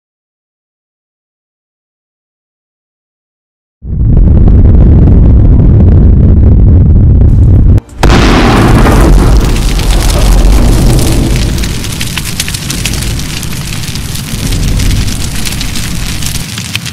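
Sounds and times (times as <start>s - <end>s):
explosion blast with deep rumble: 3.8s - 16.9s
dense crackling: 3.9s - 16.9s.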